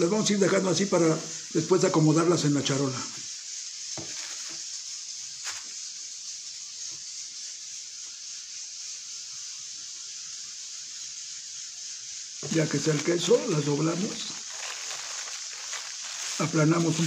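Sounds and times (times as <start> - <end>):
steady hiss: 0.0 - 17.0
plastic wrap crinkling: 4.0 - 4.6, 5.4 - 5.7, 12.4 - 17.0.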